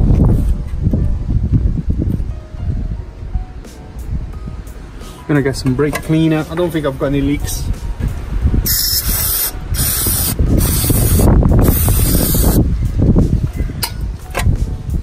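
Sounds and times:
low rumbling: 0:00.0 - 0:15.0
aerosol spray hissing: 0:08.7 - 0:12.6.

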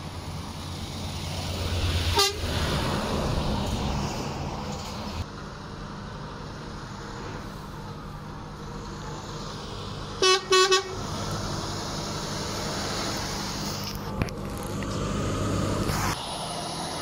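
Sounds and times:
diesel lorry engine running: 0:00.0 - 0:17.0
short loud horn toots: 0:10.2 - 0:11.0.

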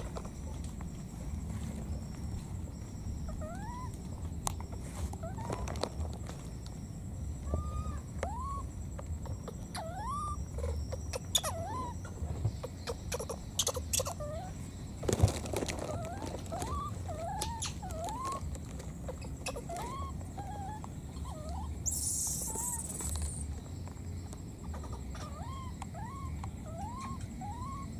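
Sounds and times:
baby monkey calling: 0:03.3 - 0:04.2, 0:07.4 - 0:14.6, 0:15.8 - 0:23.5, 0:24.8 - 0:27.9
clicks and rustles: 0:03.9 - 0:06.8, 0:15.0 - 0:20.9.

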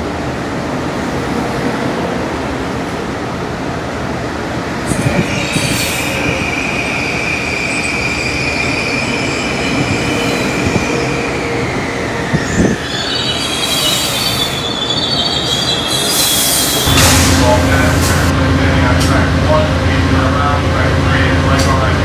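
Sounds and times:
train wheels rumbling: 0:01.4 - 0:22.0
wheels squealing on rails: 0:04.8 - 0:18.3.

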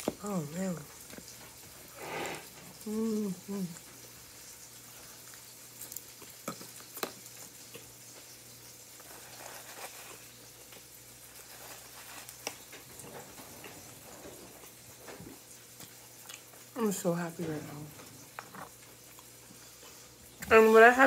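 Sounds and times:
chewing salad greens: 0:00.0 - 0:21.0.

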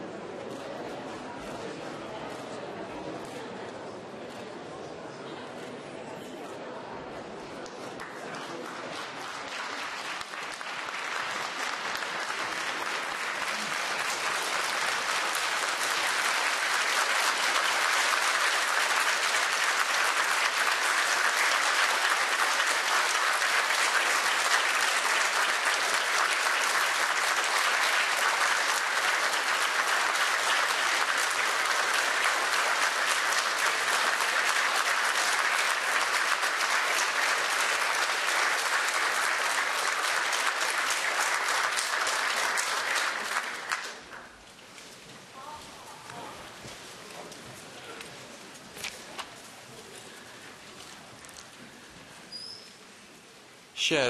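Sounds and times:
audience applauding: 0:07.6 - 0:44.4.

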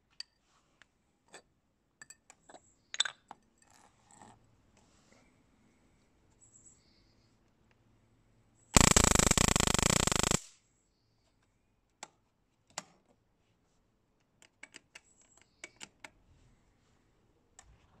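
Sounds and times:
rapid crackle of sparks: 0:08.8 - 0:10.5
sharp clicks: 0:08.8 - 0:10.5.

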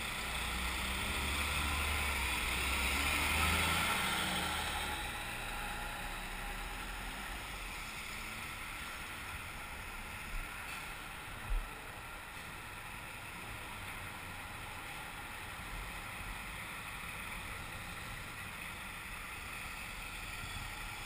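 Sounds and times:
motorcycle engine: 0:00.0 - 0:08.0
wind and road noise: 0:00.0 - 0:21.0.

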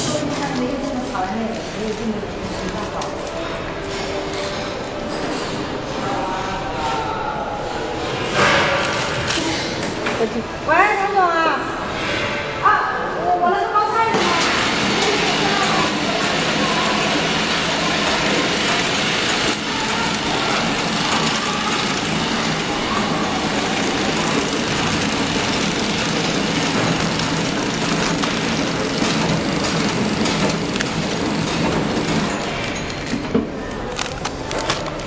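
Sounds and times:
packing machine mechanical din: 0:08.2 - 0:10.3, 0:14.1 - 0:35.0.

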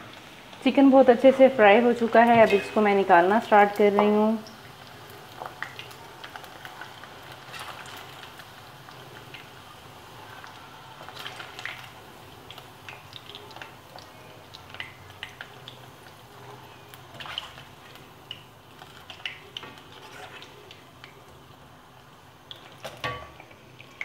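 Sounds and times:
chicken deep-frying in oil: 0:00.0 - 0:24.0.

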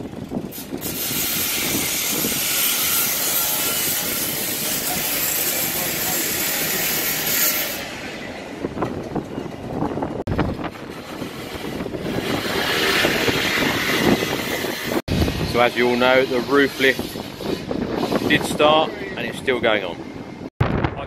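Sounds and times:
construction equipment hissing: 0:00.4 - 0:08.2.

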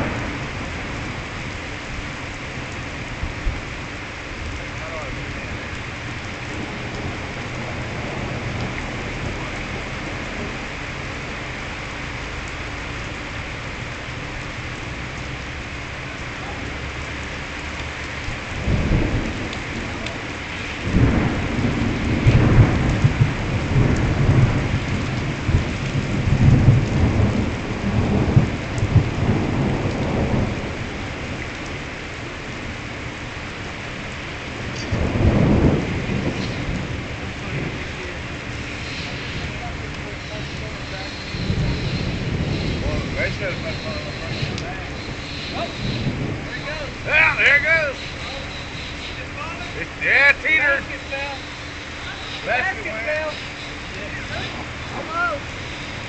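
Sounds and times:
rolling thunder: 0:00.0 - 0:12.4, 0:15.8 - 0:49.0
steady rain: 0:00.0 - 0:56.0.

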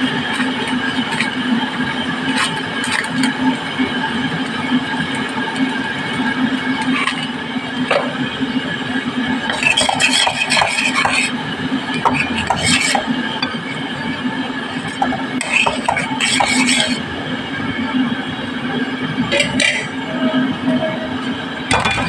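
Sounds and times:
spoon scraping paste in metal pan: 0:09.5 - 0:11.3, 0:12.0 - 0:13.1, 0:15.4 - 0:17.0.

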